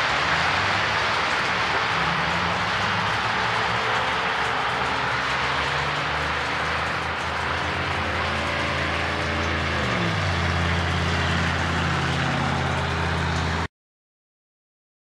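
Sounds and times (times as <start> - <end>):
tyres hissing on wet road: 0.0 - 13.7
vehicle engines humming: 0.0 - 13.7.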